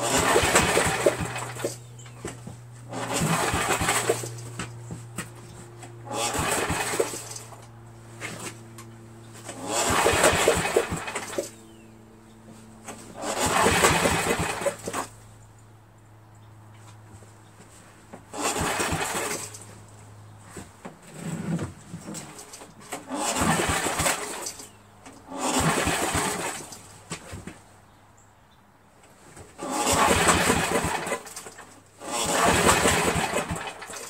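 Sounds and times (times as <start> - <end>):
engine cranking with recoil starter: 0.0 - 11.8, 12.8 - 15.2, 18.2 - 19.8, 21.0 - 27.5, 29.4 - 34.0.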